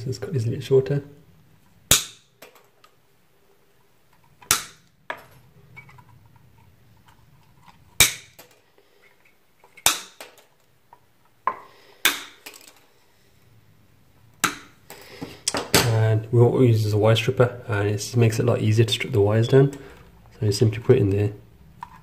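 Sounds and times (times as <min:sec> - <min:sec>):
wire cutters snapping: 0:04.4 - 0:04.9.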